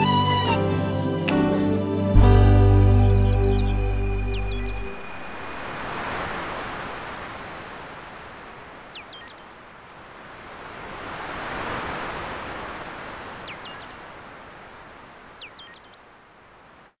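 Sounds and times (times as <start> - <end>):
surf washing onto beach: 4.8 - 15.5.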